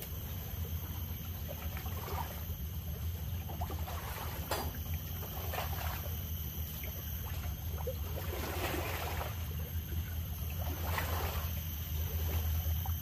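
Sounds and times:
low rumble of sea: 0:00.0 - 0:13.0.

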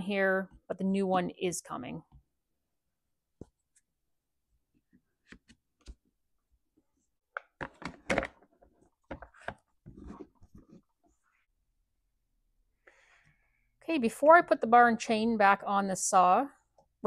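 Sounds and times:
plastic cover clicks and knocks: 0:07.4 - 0:08.5.

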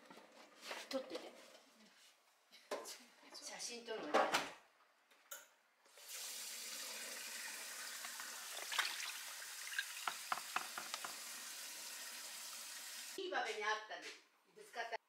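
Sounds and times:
tap water running into sink: 0:05.9 - 0:13.2.

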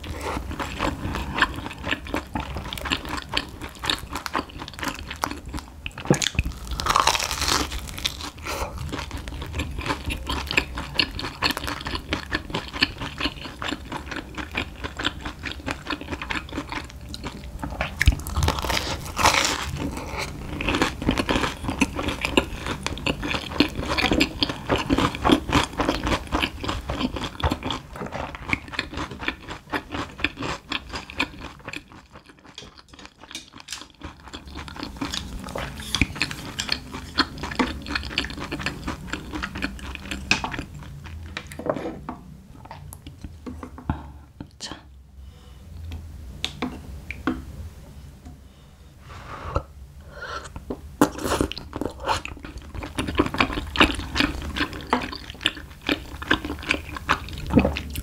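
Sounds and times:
crunchy chewing: 0:00.0 - 0:41.6.

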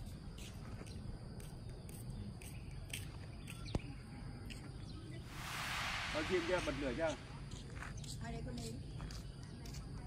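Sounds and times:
low wind rumble: 0:05.2 - 0:08.1
rushing hiss: 0:05.3 - 0:07.8.

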